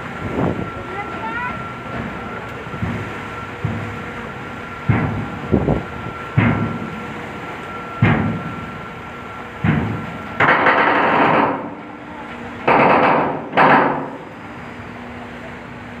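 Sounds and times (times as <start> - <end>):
faint steady whine: 0.0 - 10.6, 14.0 - 16.0.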